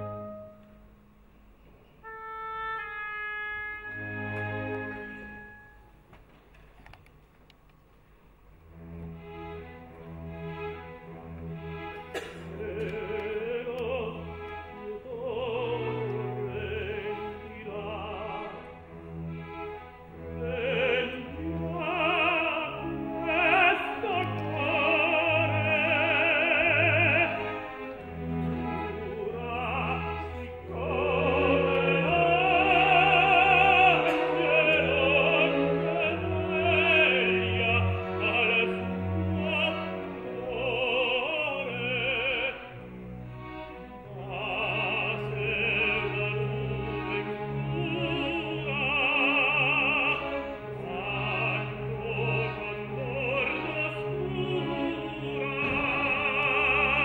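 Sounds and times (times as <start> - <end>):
full orchestra with strings: 0.0 - 57.0
operatic voice singing: 12.6 - 18.6, 20.3 - 27.8, 28.9 - 42.9, 44.0 - 57.0.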